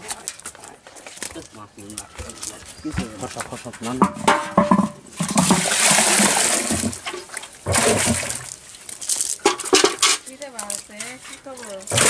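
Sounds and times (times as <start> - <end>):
water splashing and pouring: 2.4 - 10.2, 11.6 - 12.0.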